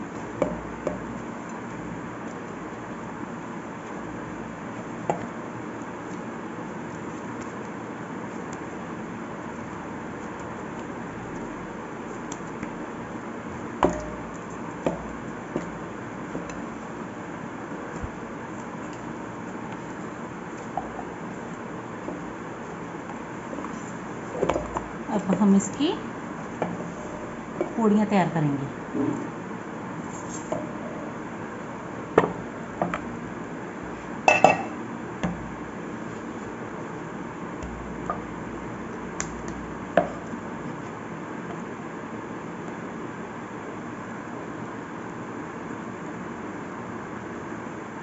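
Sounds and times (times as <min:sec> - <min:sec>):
dough kneaded in metal bowl: 0:00.0 - 0:43.1
kitchenware knocking on countertop: 0:34.3 - 0:34.8.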